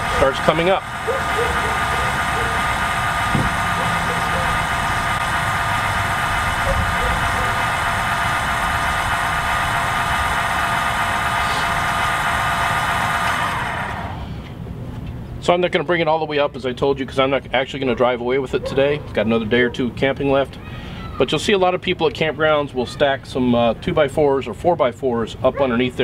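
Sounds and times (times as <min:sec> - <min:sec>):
electric jack motor whining: 0:00.0 - 0:14.5.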